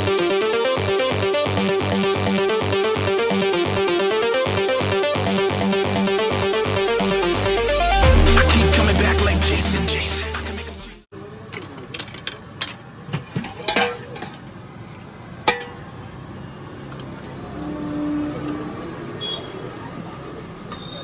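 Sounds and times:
electronic music: 0:00.0 - 0:11.1.

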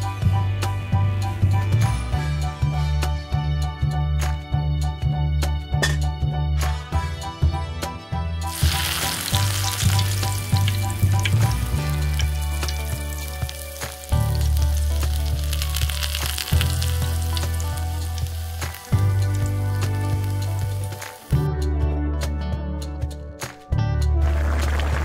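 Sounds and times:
meat sizzling in hot oil: 0:08.5 - 0:21.4.

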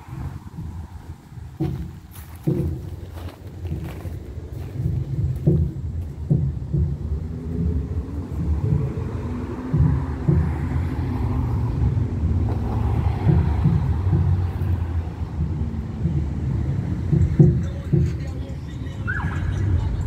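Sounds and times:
low uneven rumble: 0:00.0 - 0:20.0
car driving past: 0:04.0 - 0:17.6.

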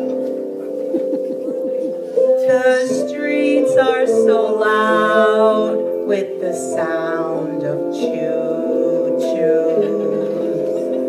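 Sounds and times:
instrumental backing music: 0:00.0 - 0:11.0
woman singing: 0:02.2 - 0:11.0.

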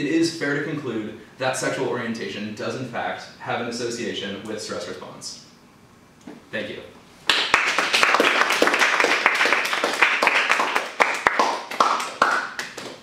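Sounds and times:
audience clapping: 0:07.3 - 0:13.0.

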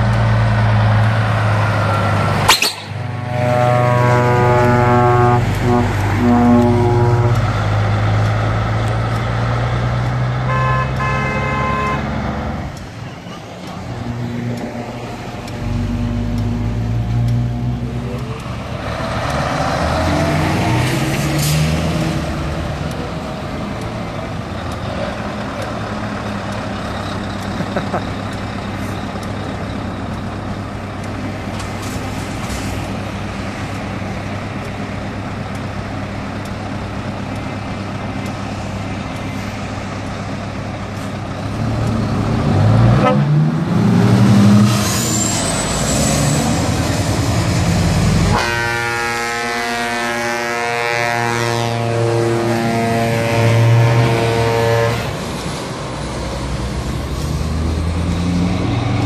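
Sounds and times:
truck diesel engine: 0:00.0 - 0:59.0
truck air horn blast: 0:03.2 - 0:07.6, 0:10.4 - 0:12.2, 0:43.0 - 0:43.4, 0:48.2 - 0:55.4.

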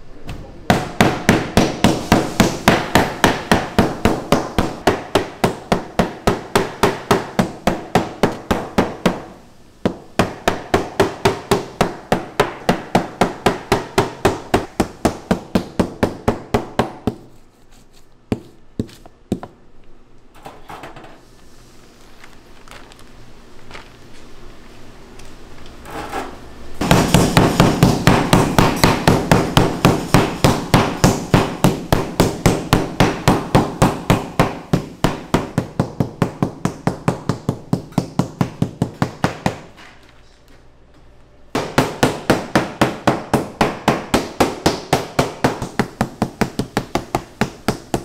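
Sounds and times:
meat mallet pounding on wooden board: 0:00.7 - 0:09.3, 0:09.9 - 0:17.2, 0:26.8 - 0:39.6, 0:41.6 - 0:48.0.

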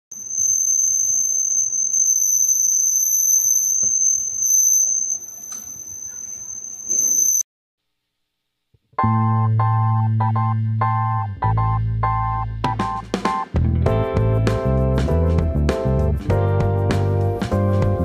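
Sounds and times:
high-pitched buzzer tone: 0:00.1 - 0:07.4.

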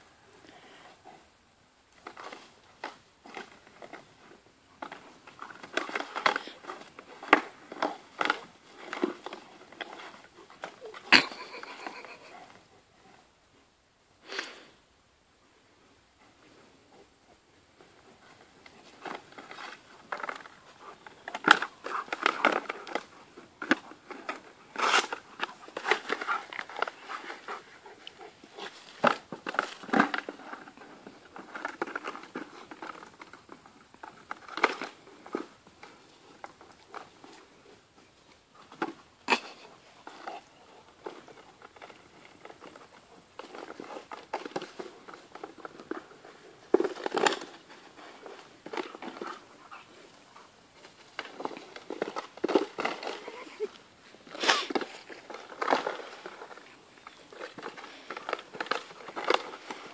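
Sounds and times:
dog chewing plastic flowerpot: 0:19.0 - 0:37.4, 0:40.0 - 0:53.3, 0:54.7 - 0:59.9.

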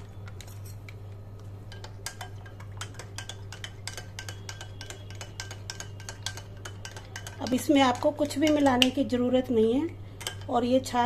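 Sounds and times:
spoon clinking in cup: 0:00.3 - 0:00.9.

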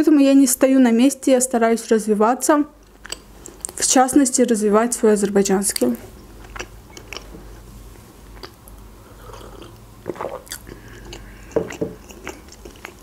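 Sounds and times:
person chewing with wet smacks: 0:02.8 - 0:03.9, 0:05.0 - 0:13.0.

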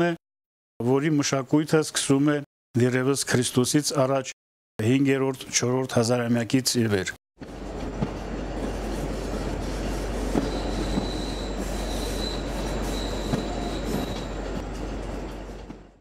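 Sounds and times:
train rumbling on rails: 0:07.4 - 0:16.0
high wheel squeal: 0:10.2 - 0:14.6.

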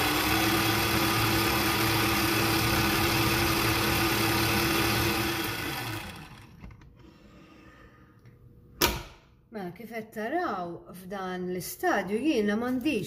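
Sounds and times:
stand mixer motor running: 0:00.0 - 0:06.7.

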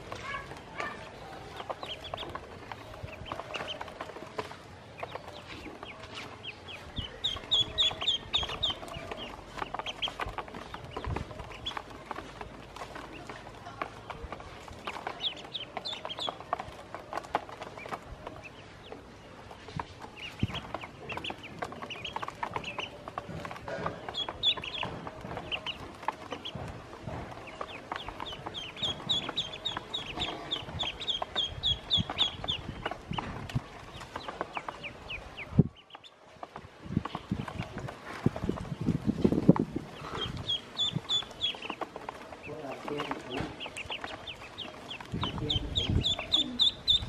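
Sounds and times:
bills pecking plastic basin: 0:00.0 - 0:47.0
ducklings peeping: 0:00.0 - 0:47.0.

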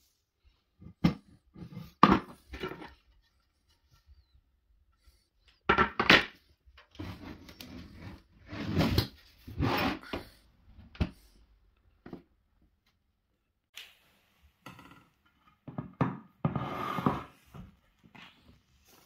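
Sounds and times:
boards scraping on wooden floor: 0:07.0 - 0:10.3, 0:16.4 - 0:17.7.

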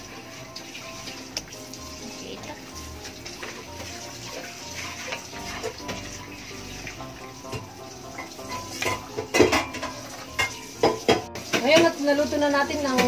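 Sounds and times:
background music: 0:00.0 - 0:13.0
spoon knocking against pot: 0:08.5 - 0:12.0.

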